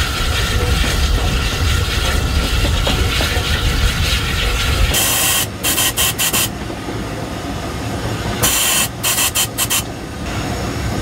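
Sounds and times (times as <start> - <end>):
steam locomotive rumble: 0.0 - 11.0
sharp steam hisses: 3.5 - 6.6, 8.4 - 10.0.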